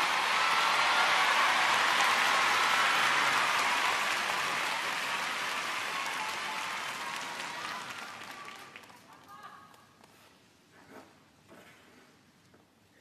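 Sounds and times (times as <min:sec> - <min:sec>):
audience applauding: 0:00.0 - 0:09.4.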